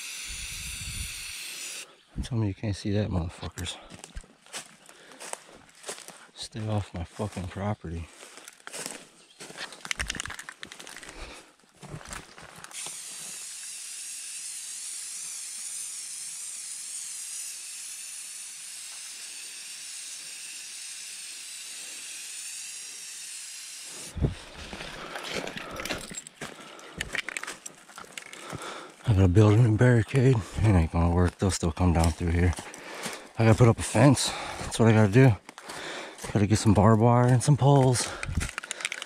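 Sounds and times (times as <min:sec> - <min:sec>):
aerosol spray can hissing: 0:00.0 - 0:01.8
footsteps in dry leaves: 0:03.8 - 0:12.8, 0:24.1 - 0:39.0.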